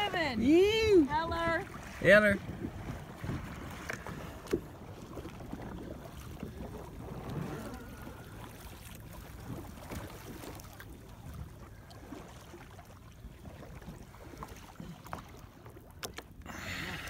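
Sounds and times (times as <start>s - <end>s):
wind rumble on microphone: 0.0s - 8.6s
water sloshing around a kayak: 0.0s - 17.0s.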